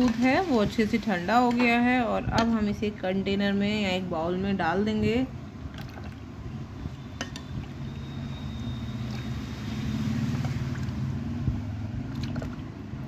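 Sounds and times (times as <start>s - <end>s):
low motor hum: 5.1s - 13.0s.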